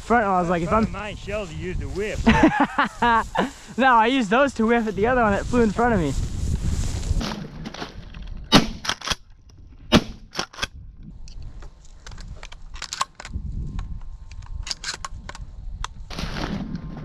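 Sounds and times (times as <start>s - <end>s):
shotgun shots: 8.5s - 9.2s.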